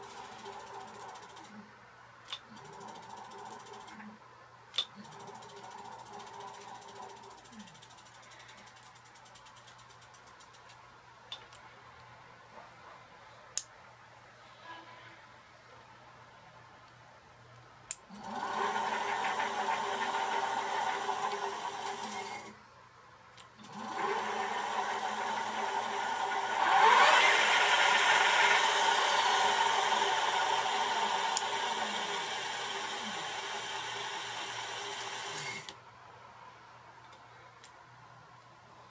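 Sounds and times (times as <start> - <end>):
click: 2.3 - 2.5, 4.7 - 4.9, 17.6 - 18.1
electric motor whirring whine: 23.8 - 35.7.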